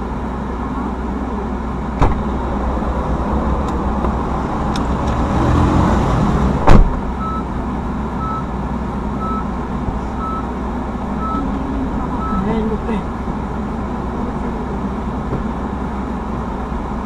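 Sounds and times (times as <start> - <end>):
car cabin road rumble: 0.0 - 17.0
electronic warning chime: 11.2 - 11.5, 12.2 - 12.5.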